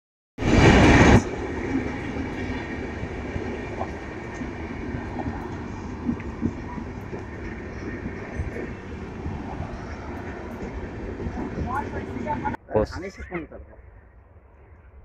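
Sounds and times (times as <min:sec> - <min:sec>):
train wheels rumbling on rails: 0:00.4 - 0:12.6.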